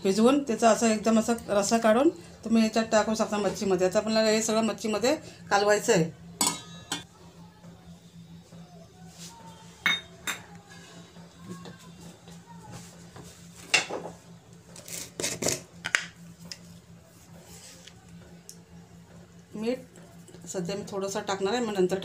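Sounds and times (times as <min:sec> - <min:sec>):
metal bowls and utensils clinking: 0:06.4 - 0:07.1, 0:09.8 - 0:10.6.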